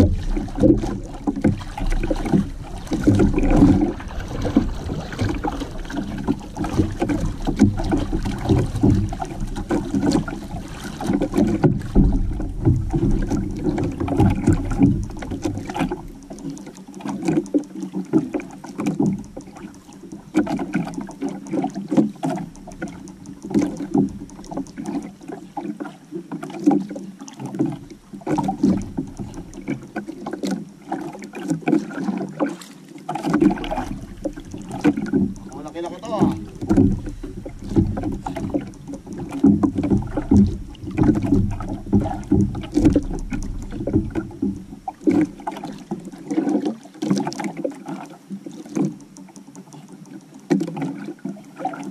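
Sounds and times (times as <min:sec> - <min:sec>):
small knocks: 0:00.0 - 0:25.0, 0:33.2 - 0:47.6
water sloshing against hull: 0:00.0 - 0:51.9.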